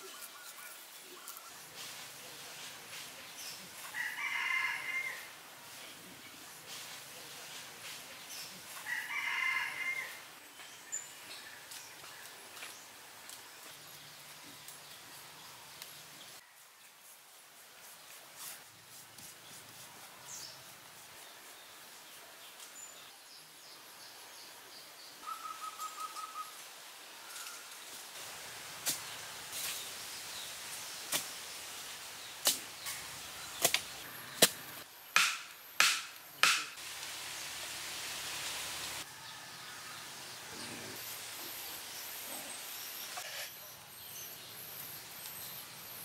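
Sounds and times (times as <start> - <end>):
wooden stakes pounded into ground: 31.1 - 31.4, 32.4 - 33.0, 33.6 - 36.8.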